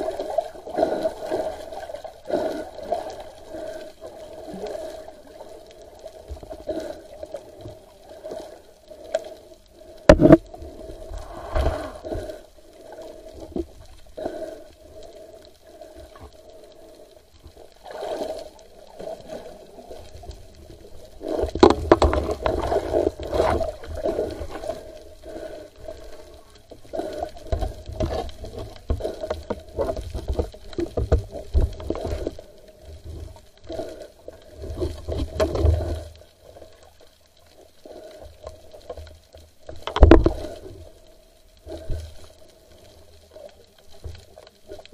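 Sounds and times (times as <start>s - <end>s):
water gurgling underwater: 17.8s - 24.8s.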